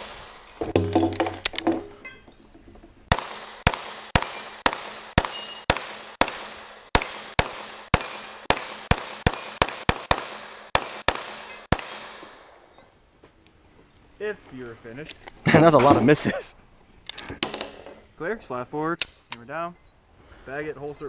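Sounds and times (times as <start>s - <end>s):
pistol shots with echo: 3.1s - 12.5s.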